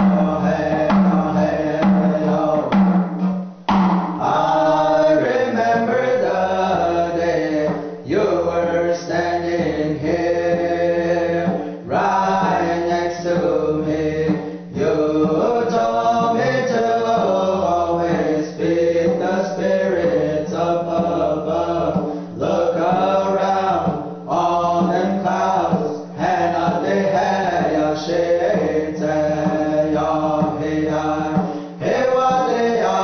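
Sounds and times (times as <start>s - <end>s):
men chanting a song: 0.0s - 3.2s, 4.1s - 33.0s
breaths: 22.0s - 22.4s, 31.4s - 31.8s.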